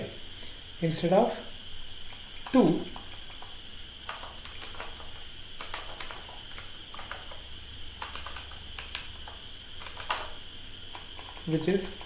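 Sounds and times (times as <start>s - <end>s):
steady background hum: 0.0s - 12.0s
keyboard key clicks: 8.0s - 11.5s.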